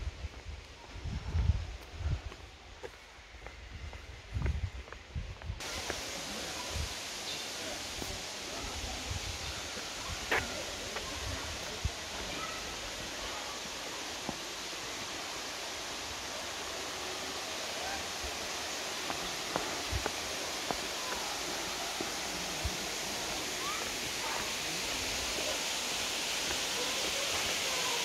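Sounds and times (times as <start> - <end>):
waterfall and creek rushing: 5.6 - 28.0.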